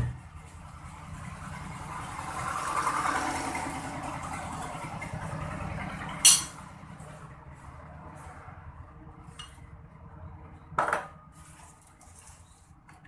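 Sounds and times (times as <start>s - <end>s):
engine hum of passing vehicle: 0.0s - 13.0s.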